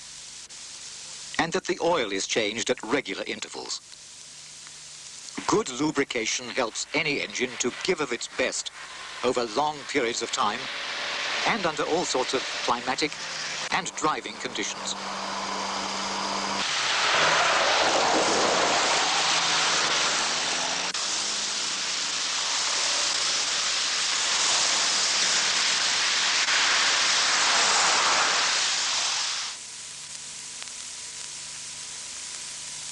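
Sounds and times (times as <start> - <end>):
vehicles driving past: 9.9 - 21.0.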